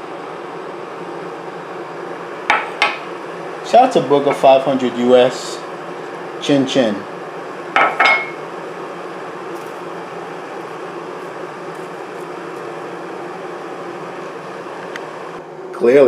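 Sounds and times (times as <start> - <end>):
ceramic mug clinking on stone: 7.8 - 8.4.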